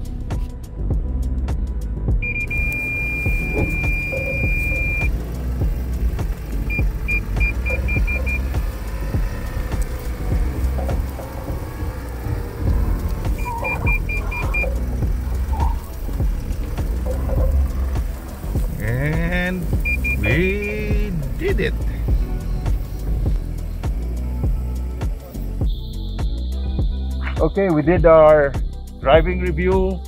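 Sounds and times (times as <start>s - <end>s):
vehicle engine low rumble: 0.0s - 30.0s
parking sensor beeps: 2.2s - 21.8s.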